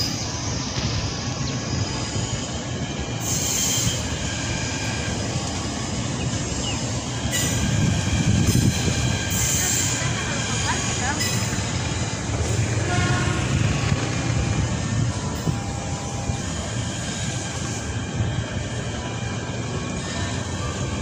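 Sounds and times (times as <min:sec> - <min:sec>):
train wheels rumbling on rails: 0:00.0 - 0:21.0
faint wheel squeal: 0:02.0 - 0:05.0.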